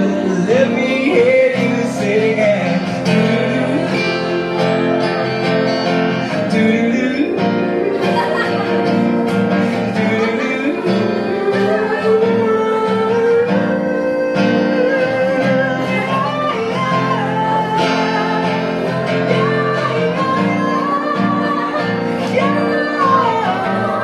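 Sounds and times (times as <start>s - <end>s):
man singing into a microphone: 0.0s - 24.0s
strummed acoustic guitar: 0.0s - 24.0s.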